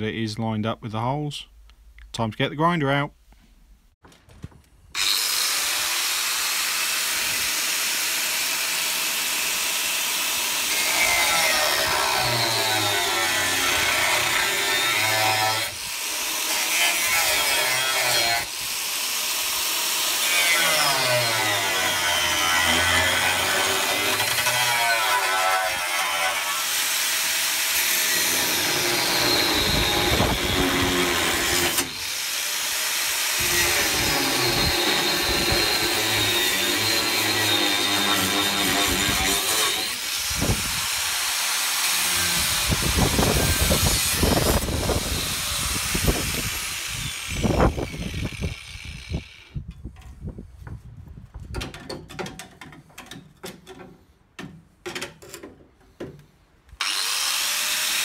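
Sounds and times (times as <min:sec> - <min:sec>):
angle grinder cutting steel: 0:05.0 - 0:49.6, 0:56.8 - 0:58.0.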